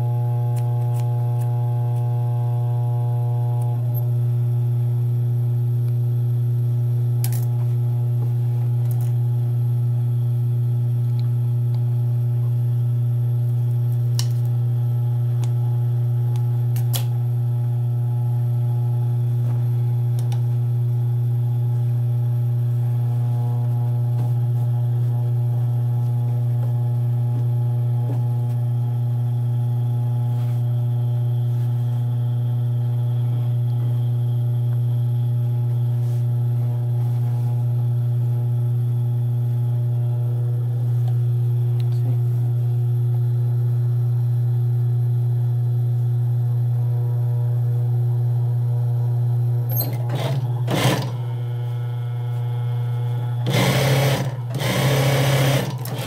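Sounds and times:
sewing machine stitching: 49.7 - 51.2, 53.4 - 56.0
sewing machine motor humming: 49.7 - 51.8, 52.6 - 56.0.

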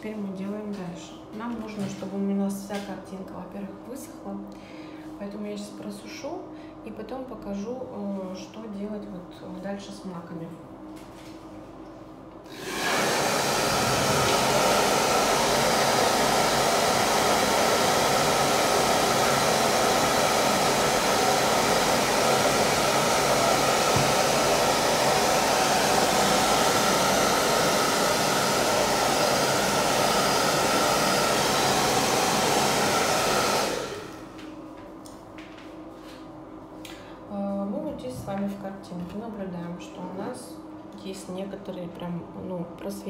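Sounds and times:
hair dryer blowing: 12.4 - 34.6.

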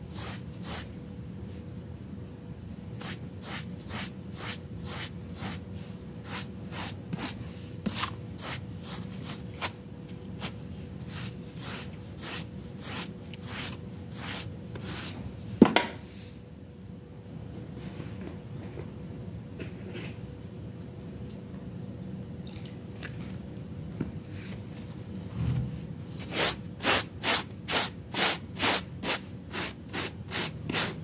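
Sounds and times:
brush scrubbing wet rug: 3.0 - 5.6, 6.2 - 9.4, 10.4 - 15.2.

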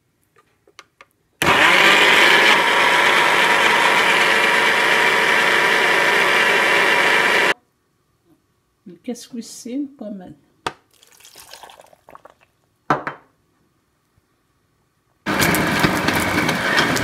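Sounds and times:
blender running: 1.4 - 7.6, 15.3 - 17.0.

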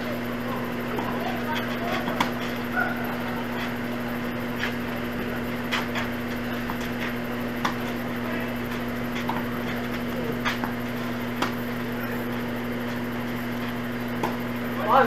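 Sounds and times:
tennis ball bounces: 0.9 - 3.7, 5.5 - 12.0, 13.5 - 14.5
tennis racket strikes: 6.7 - 8.0, 10.4 - 11.6.

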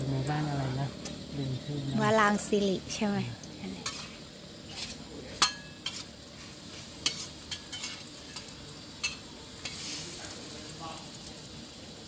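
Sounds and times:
flatbread sizzling on griddle: 0.0 - 12.0
metal spatulas clicking on griddle: 4.8 - 6.1, 7.0 - 9.9.

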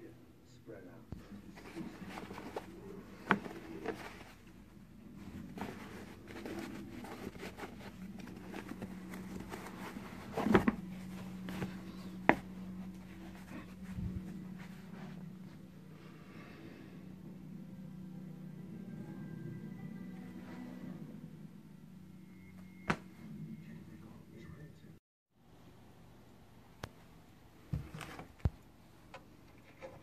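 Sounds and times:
steady low hum: 0.0 - 30.0
fabric rustling: 1.2 - 15.8, 22.7 - 23.3.

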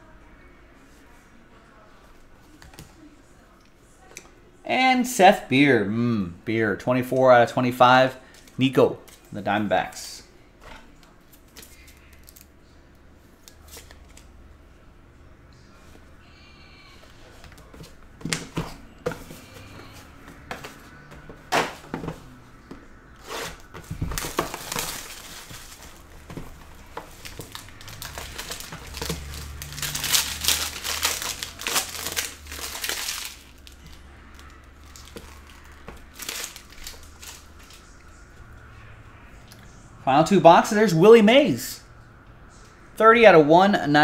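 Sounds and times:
card packaging crinkling and tearing: 11.3 - 12.5, 23.2 - 38.0.

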